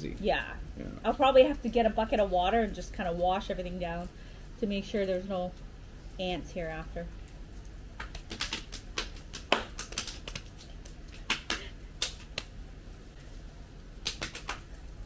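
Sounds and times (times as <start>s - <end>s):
people clapping hands: 8.0s - 12.5s, 14.0s - 14.8s.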